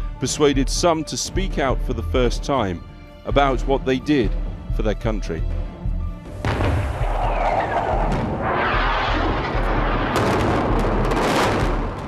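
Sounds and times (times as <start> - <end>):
rumble of explosions: 6.3 - 12.0.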